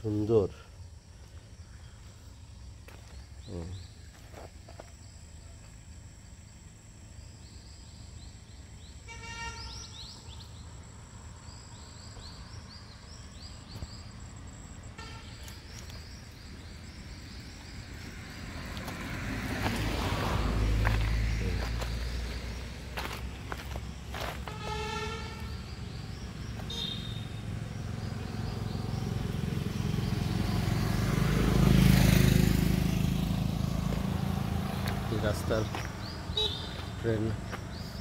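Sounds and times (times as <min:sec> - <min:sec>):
high insect drone: 0:00.0 - 0:38.0
bird chirping: 0:07.2 - 0:20.0, 0:20.9 - 0:32.3, 0:34.2 - 0:38.0
distant horn-like toot: 0:09.0 - 0:09.9, 0:15.0 - 0:15.6, 0:24.3 - 0:25.8, 0:26.7 - 0:27.4, 0:36.3 - 0:36.9
rustling footsteps: 0:20.8 - 0:24.8, 0:35.6 - 0:37.9.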